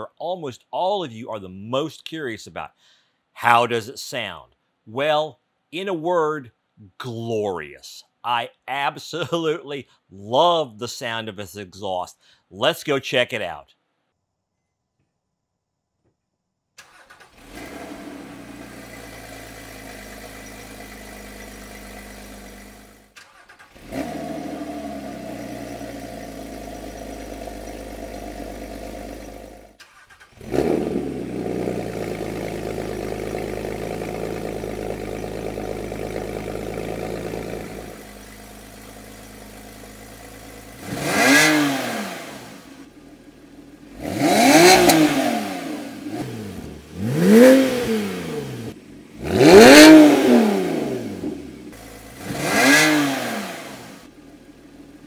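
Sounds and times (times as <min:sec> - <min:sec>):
engine revving: 0:16.8 - 0:54.3
car engine starting and idling: 0:16.8 - 0:55.0.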